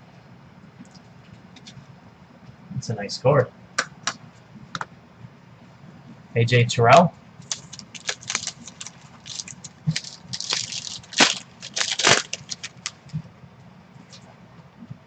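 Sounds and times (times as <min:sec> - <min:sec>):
trading cards rustling: 0:07.4 - 0:13.1
plastic packaging crinkling: 0:07.4 - 0:13.2.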